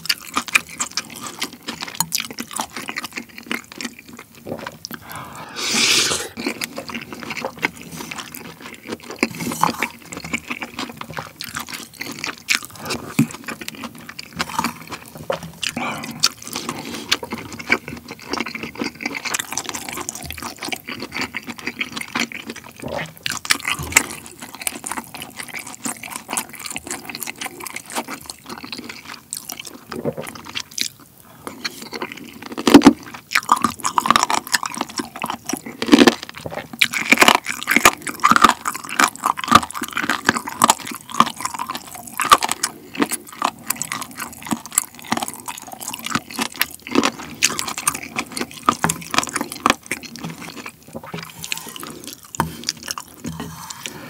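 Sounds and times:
wet chewing and slurping: 0.0 - 54.0
spoon scooping in bowl: 50.1 - 54.0.

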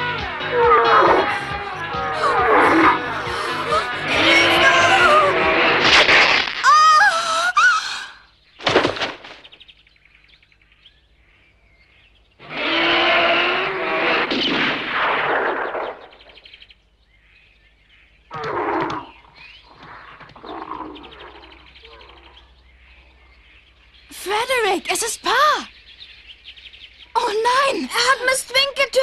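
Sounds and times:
bear roar: 0.0 - 6.0, 12.4 - 14.3, 18.3 - 19.2, 19.8 - 22.5
loud clamour: 0.0 - 6.0
rifle shot: 14.2 - 16.1.

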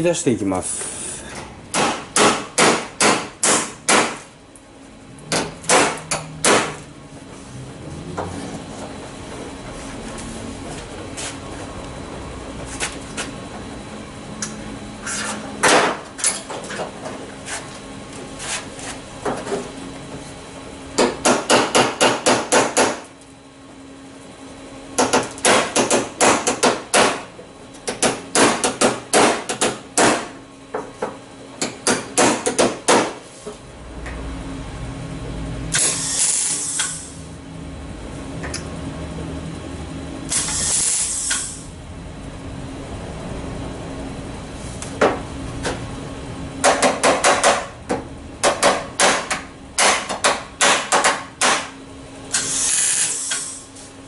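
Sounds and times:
welding hiss: 35.8 - 37.2, 40.3 - 41.7, 52.3 - 53.8.

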